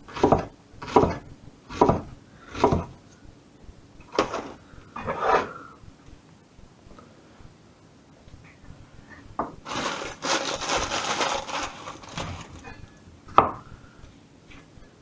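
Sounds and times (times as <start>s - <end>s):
cleaver chopping on wooden board: 0.2s - 2.9s
plastic bag crinkling: 9.6s - 12.8s.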